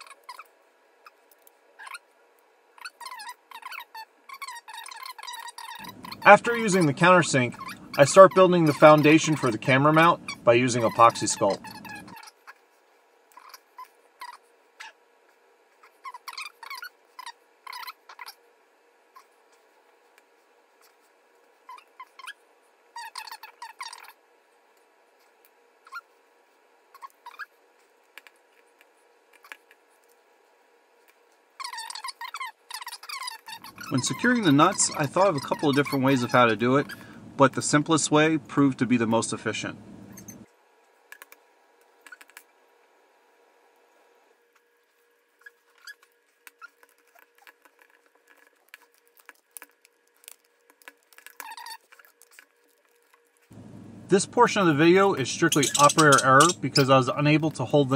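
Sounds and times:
rising squeaks: 5.7 - 12.2, 33.5 - 40.5, 53.5 - 57.9
faint room hiss: 5.8 - 12.1, 33.6 - 45.2, 53.2 - 57.9.

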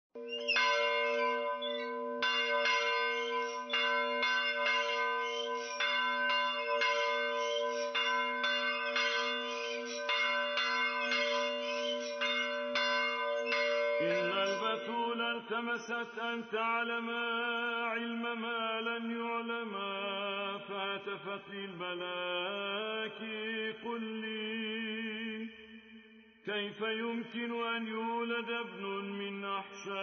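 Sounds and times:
church bells ringing: 0.2 - 16.8.

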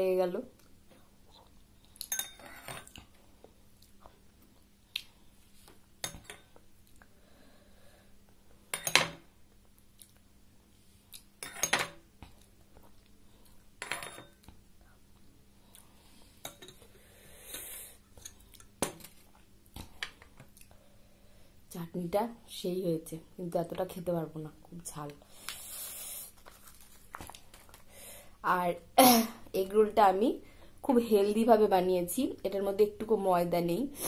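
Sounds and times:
spoon clinking on glass bowl: 2.0 - 2.7
quiet chewing: 9.6 - 10.3.

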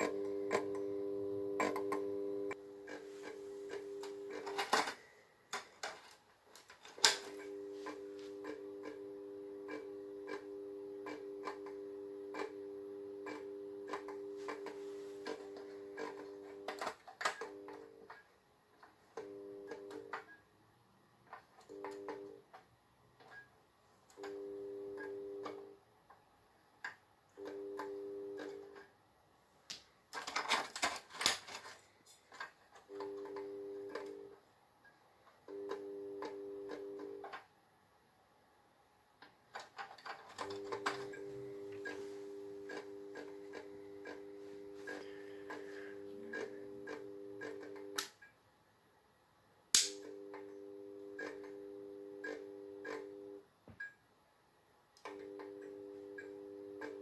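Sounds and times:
fluorescent ballast humming: 0.0 - 5.0, 7.0 - 18.0, 40.4 - 48.1.

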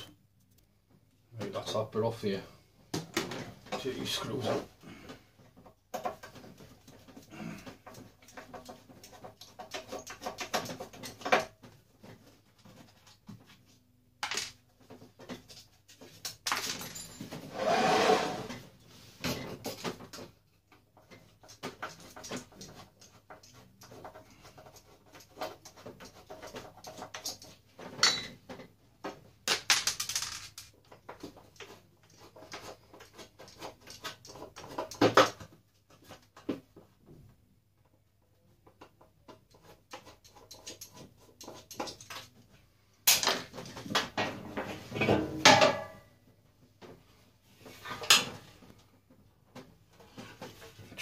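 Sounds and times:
metal parts clinking and knocking: 16.4 - 17.4, 29.5 - 31.0.

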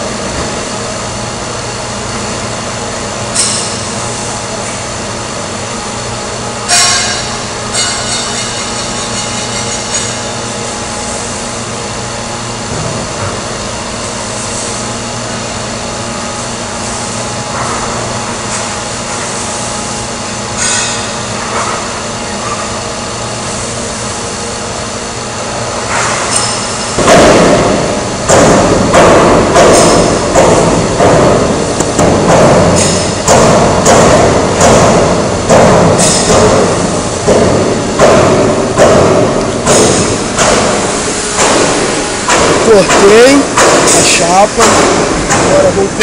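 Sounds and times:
metal shear motor hum: 0.0 - 46.0.

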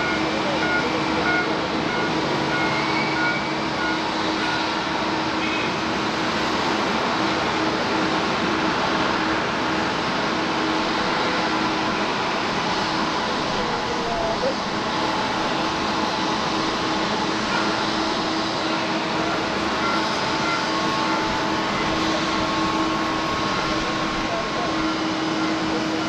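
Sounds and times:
jet engines taxiing: 0.0 - 26.0.

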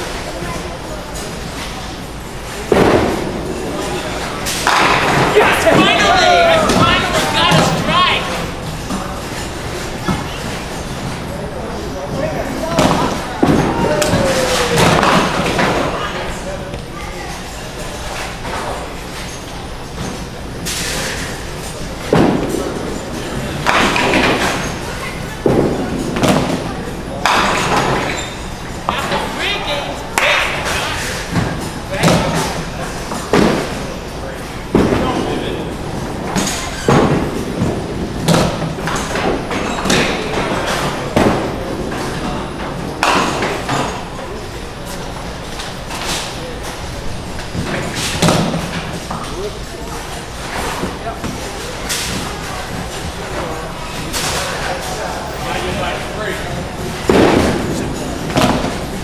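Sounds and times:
bowling balls thudding and rolling: 1.7 - 12.2, 20.0 - 29.4, 34.7 - 44.3, 56.4 - 59.0.

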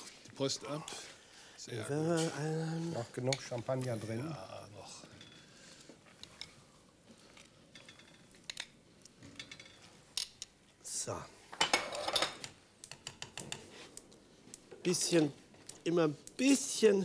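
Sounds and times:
clinks of utensils and dishes: 7.8 - 8.6, 11.6 - 13.7.

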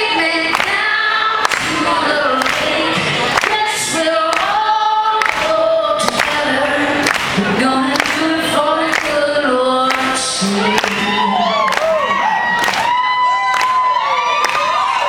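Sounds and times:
woman singing long notes: 0.0 - 12.0.

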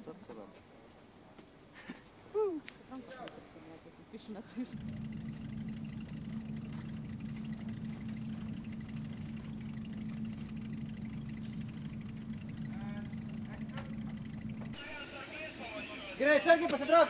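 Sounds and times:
engine running steadily: 4.7 - 15.0.

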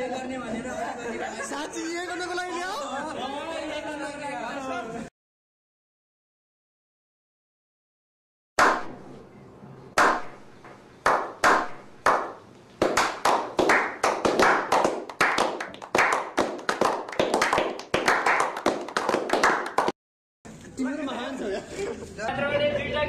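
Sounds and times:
echoing hand claps: 8.6 - 9.0, 10.0 - 20.0.

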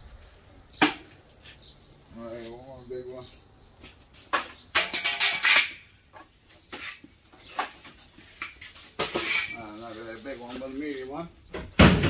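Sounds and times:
metal clanks and knocks: 4.2 - 9.6.

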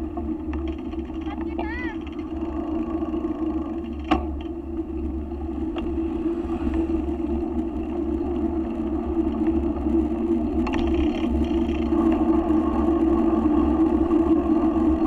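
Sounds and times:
road rumble: 0.0 - 15.0
passing car traffic: 5.2 - 7.8.

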